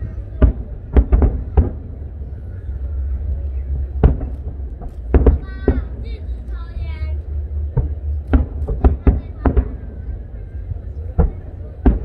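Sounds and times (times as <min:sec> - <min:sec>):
fireworks booming: 0:00.0 - 0:12.0
low rumble: 0:00.0 - 0:12.0.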